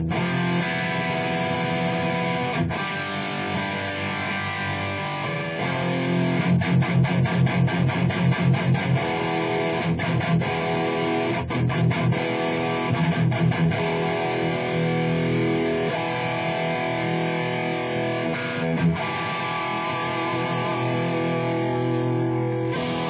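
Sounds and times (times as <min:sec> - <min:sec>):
electric guitar rock riffs: 0:00.0 - 0:23.0.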